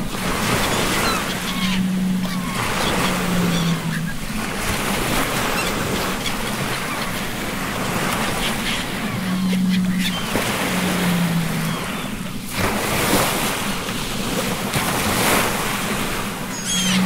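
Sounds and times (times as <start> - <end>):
low drawn-out tones: 0.0 - 12.6
seagulls calling: 0.0 - 13.8, 14.9 - 17.0
ocean waves breaking: 0.0 - 17.0.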